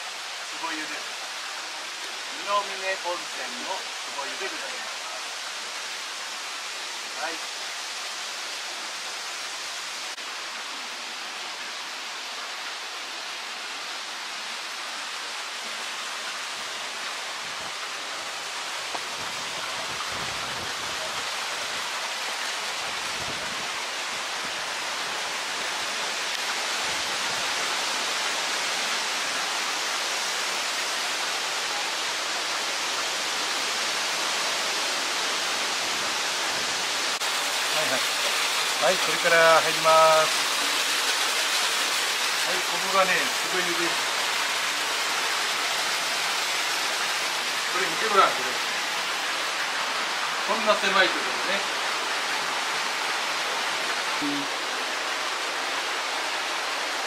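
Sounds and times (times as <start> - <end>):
stream water rushing: 0.0 - 57.0.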